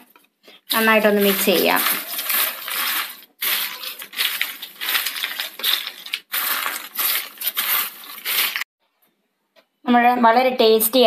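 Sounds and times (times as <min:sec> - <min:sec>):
fried chips crunching and rustling: 0:00.7 - 0:08.7
chips clinking against a plate: 0:00.8 - 0:08.6.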